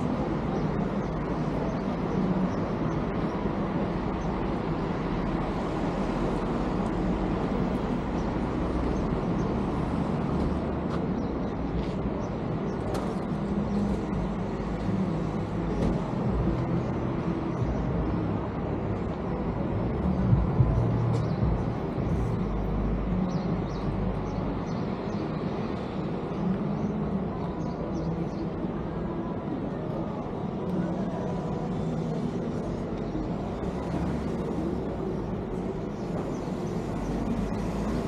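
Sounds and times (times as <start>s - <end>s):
faint engine hum: 0.0s - 38.0s
vehicle rumble: 0.0s - 38.0s.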